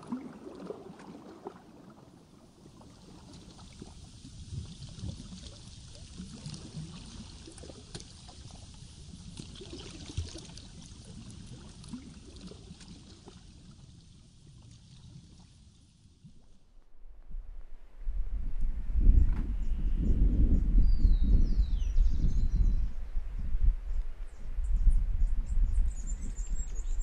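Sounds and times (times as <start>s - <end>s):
small waves lapping: 0.0s - 16.6s.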